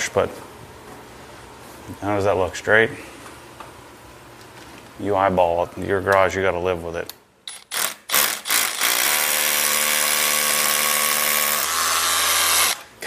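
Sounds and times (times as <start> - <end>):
hammer drill boring into block: 7.5 - 12.9.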